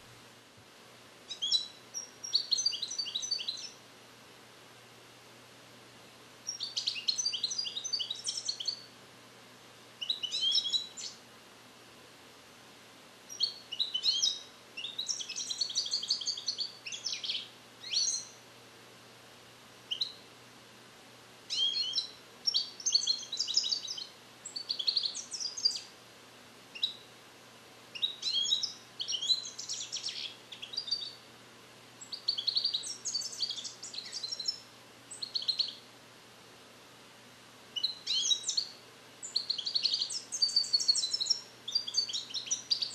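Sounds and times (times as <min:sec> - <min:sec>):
goldfinch twittering: 0:28.0 - 0:31.2, 0:32.0 - 0:35.8, 0:37.8 - 0:42.9.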